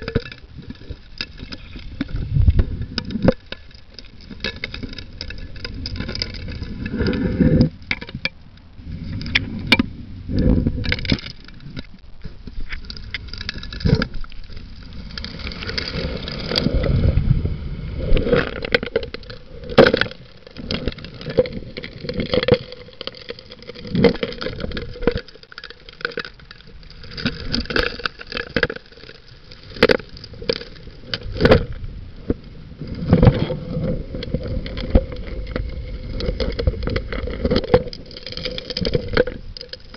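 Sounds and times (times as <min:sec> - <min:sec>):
faint steady hum: 0:00.0 - 0:39.9
low rushing rumble: 0:15.0 - 0:18.4.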